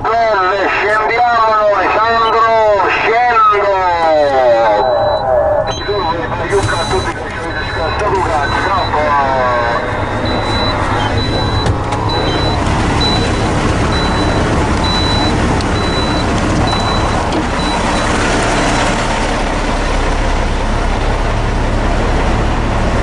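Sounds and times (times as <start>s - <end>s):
truck diesel engine rumbling: 0.0s - 23.0s
high-pitched beeps: 4.2s - 19.0s.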